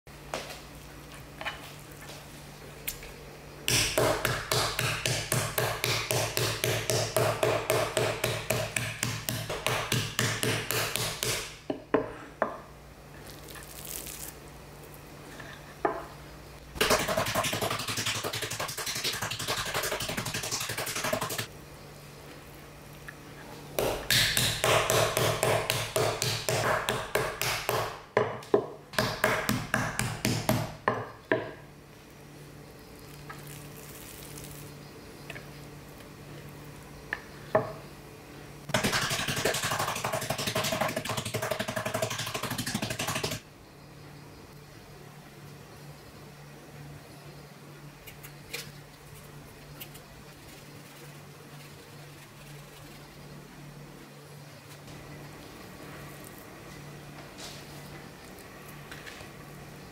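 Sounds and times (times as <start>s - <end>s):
mallet pounding meat on board: 3.7s - 11.5s, 23.8s - 31.4s.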